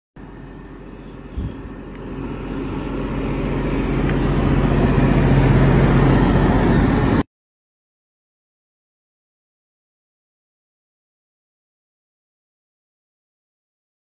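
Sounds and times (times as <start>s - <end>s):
bus engine idling: 0.2s - 7.2s.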